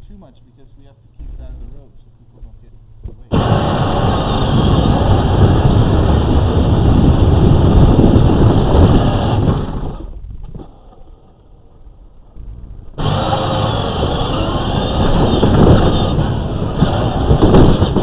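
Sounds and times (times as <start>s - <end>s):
plastic wheels rumbling on pavement: 14.3s - 18.0s.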